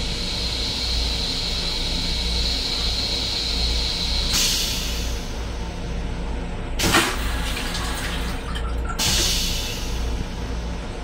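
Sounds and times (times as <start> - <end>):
train low rumble: 0.0 - 11.0
hiss: 0.1 - 5.2.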